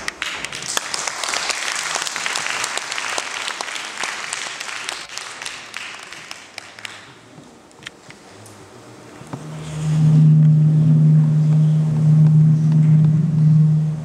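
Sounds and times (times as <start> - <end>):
audience applause: 0.1 - 7.3.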